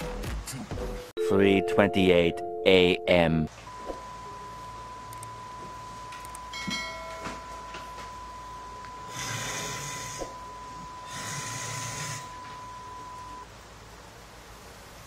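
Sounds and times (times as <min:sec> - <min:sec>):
steady test tone: 0:01.2 - 0:13.5
click and chime: 0:05.0 - 0:05.4, 0:06.1 - 0:09.0
man snoring: 0:09.0 - 0:12.5.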